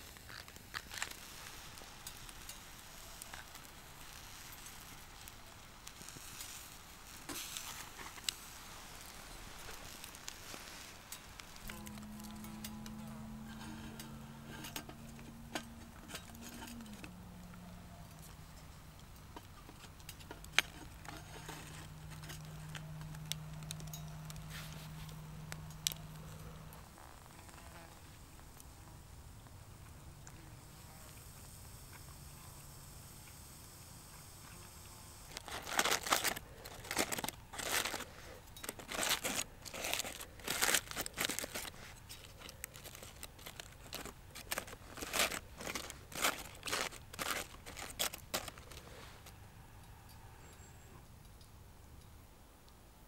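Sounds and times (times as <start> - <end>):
sharp pops from fire: 0.0 - 12.0
steak sizzling on grill: 0.0 - 13.0, 30.6 - 36.8
wood fire crackling: 0.0 - 49.4
steady low hum: 0.0 - 53.0
utensils clicking on grate: 9.2 - 26.6.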